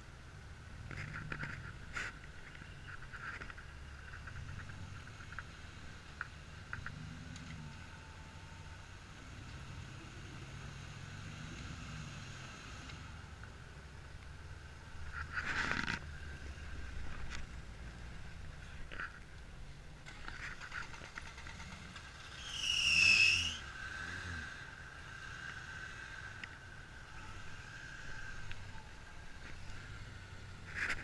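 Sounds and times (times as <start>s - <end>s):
high squeal: 22.2s - 23.8s.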